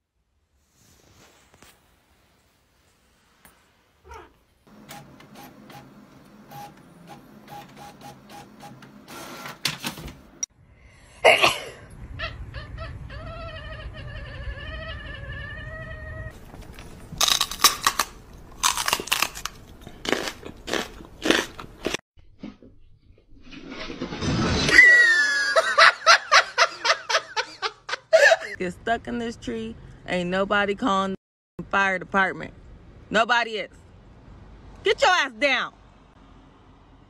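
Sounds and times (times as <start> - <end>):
cat yowling: 4.0 - 4.4, 12.2 - 16.3
printer clicking and humming: 4.7 - 10.0
sharp crunching: 16.4 - 22.0.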